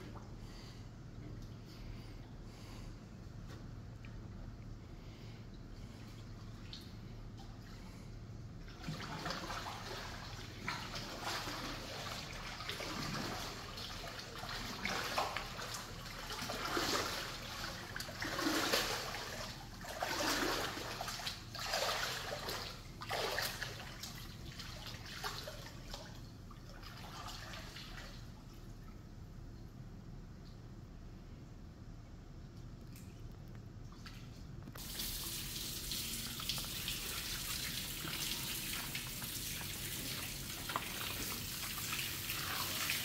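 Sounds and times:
water splashing and trickling: 0:08.7 - 0:28.3, 0:33.9 - 0:43.0.

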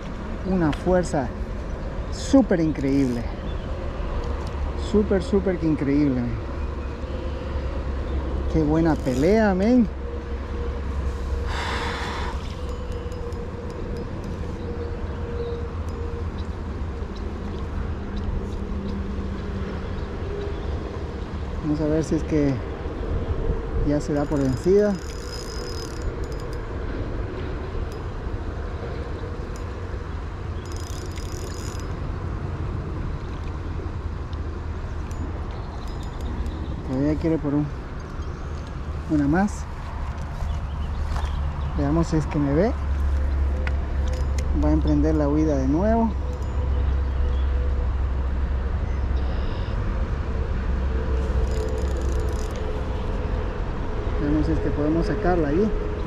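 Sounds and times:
wind rumble: 0:00.0 - 0:56.0
fishing reel ticking: 0:02.2 - 0:03.4, 0:08.6 - 0:09.8, 0:11.5 - 0:16.5, 0:24.0 - 0:26.8, 0:27.9 - 0:28.3, 0:29.3 - 0:32.0, 0:35.0 - 0:36.7, 0:44.0 - 0:45.0, 0:46.1 - 0:46.7, 0:51.3 - 0:52.8.

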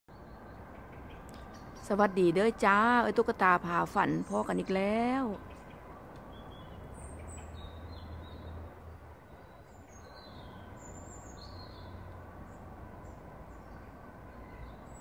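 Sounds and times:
birds chirping: 0:00.1 - 0:15.0.

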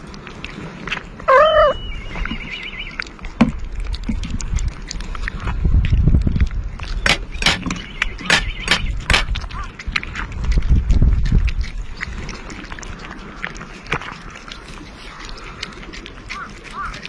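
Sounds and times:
low rumble: 0:00.0 - 0:16.4
cats chewing wet food: 0:00.0 - 0:17.0
short pitched animal call: 0:01.3 - 0:02.0.

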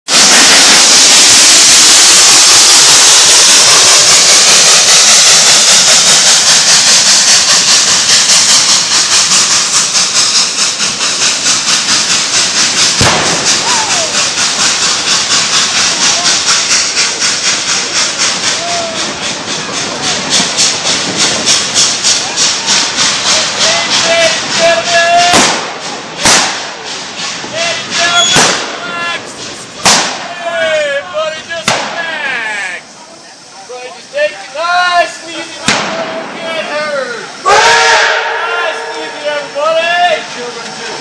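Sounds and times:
steam hiss: 0:00.1 - 0:41.0
sharp clack: 0:00.2 - 0:28.8, 0:29.4 - 0:30.3, 0:31.6 - 0:32.0, 0:35.6 - 0:36.2
rhythmic beat of passing cars: 0:06.4 - 0:32.0.

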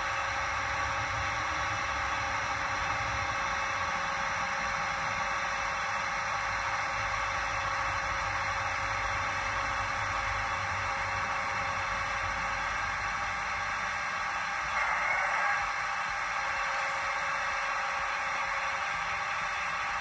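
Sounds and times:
hissy running noise from small speaker: 0:00.0 - 0:20.0.

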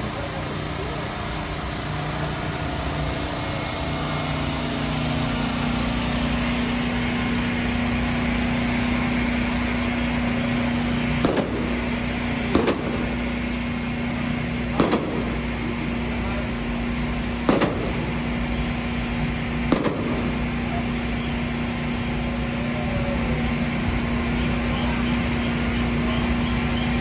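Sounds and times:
engine hum: 0:00.0 - 0:27.0
street noise: 0:00.0 - 0:27.0
sharp cracks: 0:11.0 - 0:13.7, 0:14.6 - 0:15.7, 0:17.4 - 0:18.4, 0:19.6 - 0:20.6.

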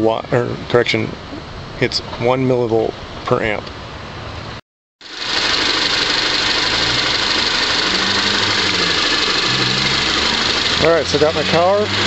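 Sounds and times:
car engine idling with hiss: 0:04.0 - 0:12.0.

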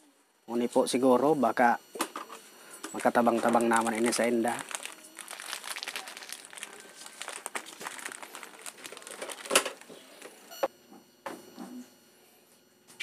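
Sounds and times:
plastic bags crinkling: 0:02.9 - 0:10.6.

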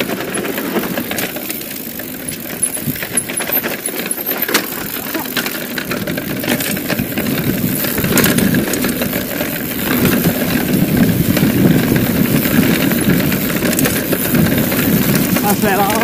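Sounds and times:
bike clicks and rattles: 0:00.0 - 0:16.0
bike tyres rumbling on dirt trail: 0:00.0 - 0:16.0
wind on microphone: 0:06.0 - 0:16.0.

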